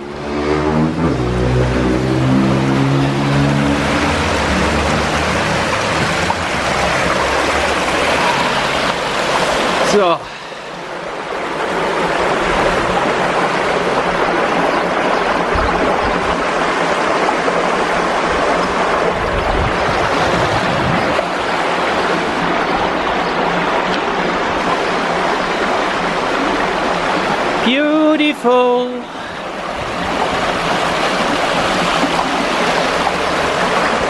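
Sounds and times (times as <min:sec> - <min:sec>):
creek rushing through channel: 0:00.0 - 0:34.0.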